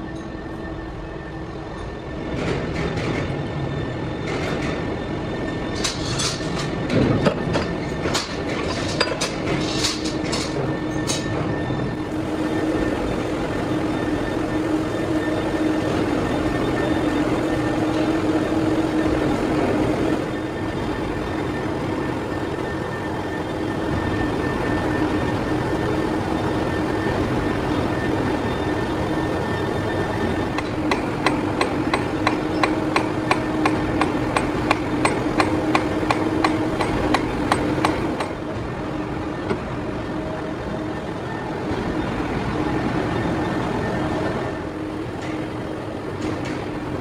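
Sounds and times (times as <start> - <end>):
machine tool humming: 11.6 - 45.0
regular ticking knocks: 30.6 - 38.4.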